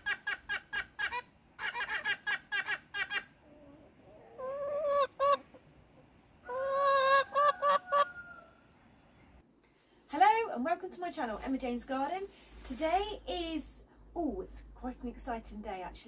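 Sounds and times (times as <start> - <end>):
hen drawn-out calls: 0.0 - 8.6
hens clucking: 0.0 - 8.6.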